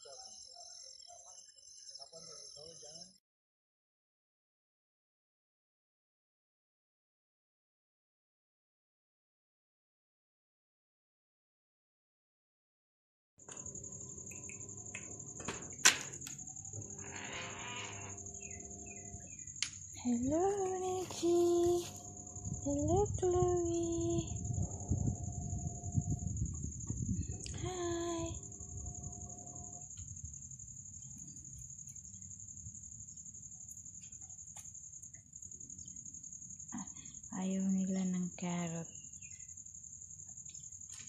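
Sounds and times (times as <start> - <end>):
insects droning: 0.0 - 3.2, 13.4 - 41.0
faint low rumble: 16.6 - 31.7.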